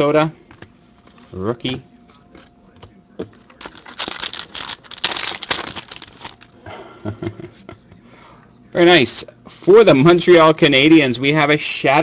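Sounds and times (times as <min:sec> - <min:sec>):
foil wrapper tearing and crinkling: 0:03.6 - 0:06.6.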